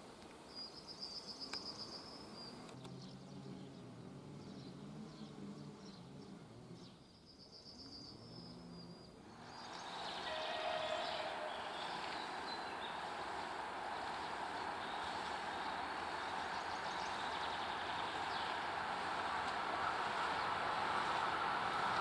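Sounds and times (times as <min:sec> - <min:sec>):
train running noise: 0:09.3 - 0:22.0.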